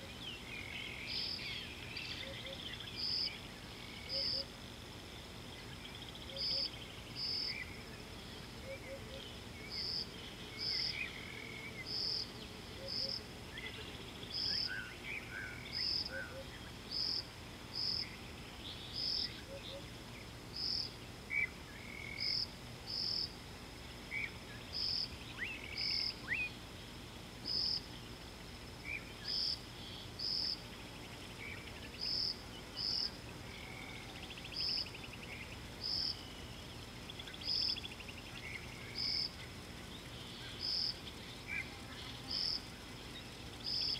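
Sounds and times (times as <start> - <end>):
bird calls: 0.0 - 4.5, 5.6 - 17.2, 17.8 - 20.0.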